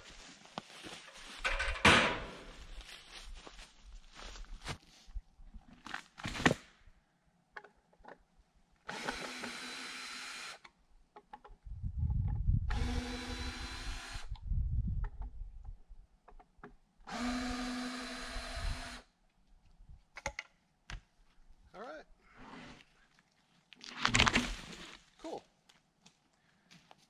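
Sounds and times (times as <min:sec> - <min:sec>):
power drill running: 0:08.9 - 0:10.6, 0:12.7 - 0:14.3, 0:17.1 - 0:19.0
low thuds and clicks: 0:11.3 - 0:12.8, 0:14.3 - 0:16.7.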